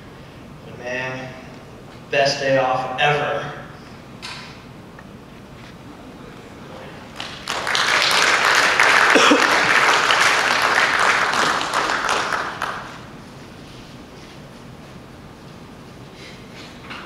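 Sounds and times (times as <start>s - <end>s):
audience applauding: 7.1s - 13.1s.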